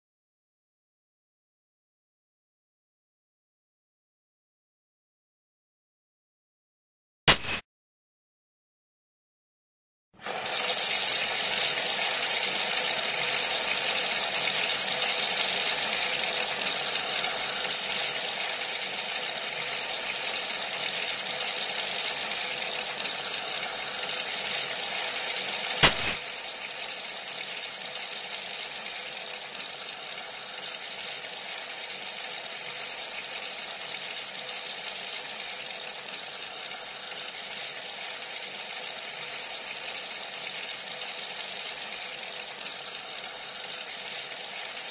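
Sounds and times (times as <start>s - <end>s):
sharp click: 7.3s - 7.6s, 25.8s - 26.2s
water gushing from a pipe: 10.2s - 44.9s.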